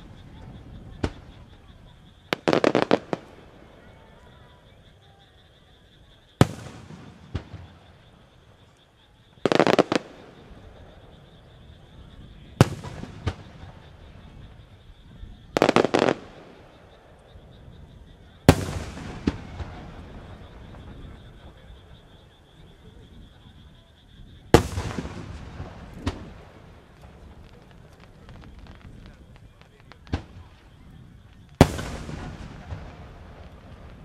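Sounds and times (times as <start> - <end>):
firework shells exploding: 2.3 - 3.7, 9.4 - 11.6, 12.2 - 14.6, 15.6 - 17.1, 18.4 - 21.4, 24.5 - 34.0
booms with rolling echo: 6.4 - 8.7, 9.5 - 23.5, 24.2 - 34.0.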